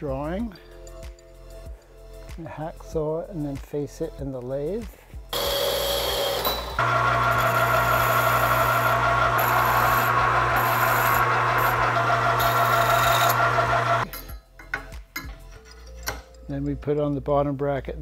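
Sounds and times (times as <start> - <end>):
band saw cutting metal: 5.4 - 14.0
file against spinning metal: 5.4 - 14.0
metal lathe running: 5.4 - 14.0.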